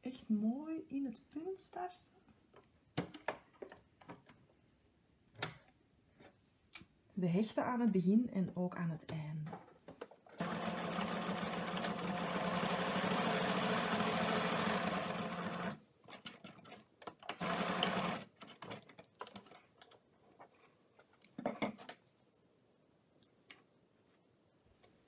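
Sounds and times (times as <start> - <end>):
sewing machine stitching: 10.4 - 19.6.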